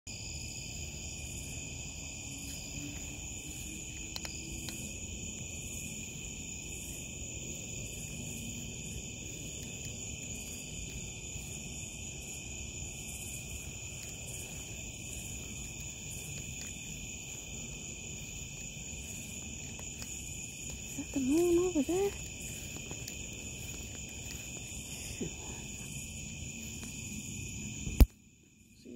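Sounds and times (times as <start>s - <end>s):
crickets trilling: 0.1s - 28.9s
faint regular pulsing: 7.8s - 27.7s.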